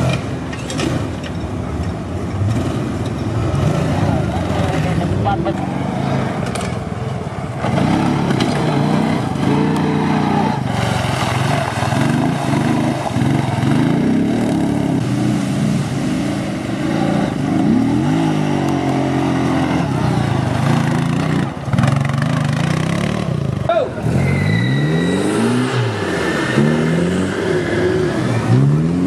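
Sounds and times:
off-road engine revving: 0.0 - 29.0.

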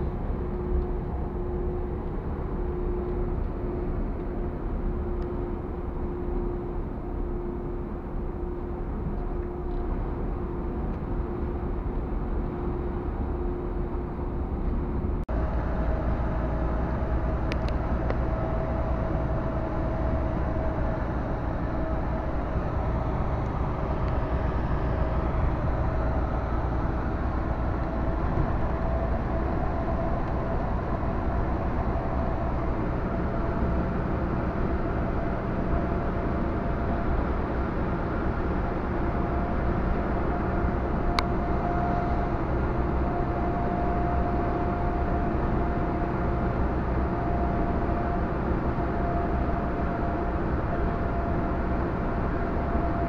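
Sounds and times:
constant whine: 0.0 - 53.0
truck engine and road rumble: 0.0 - 53.0.

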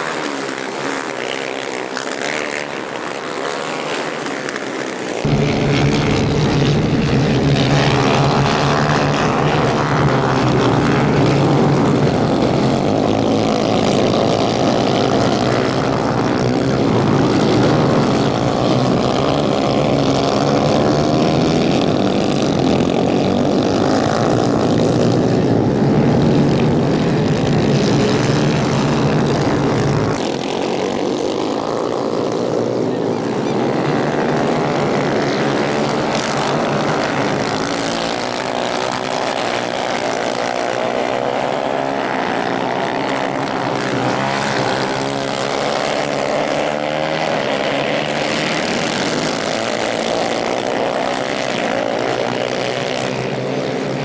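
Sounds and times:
kart engines buzzing: 0.0 - 54.0
deep low rumble: 5.2 - 12.6.

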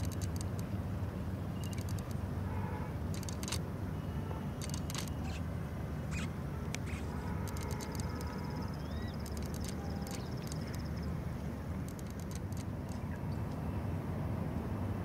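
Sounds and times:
bird chirps: 6.1 - 7.1, 7.8 - 11.1.

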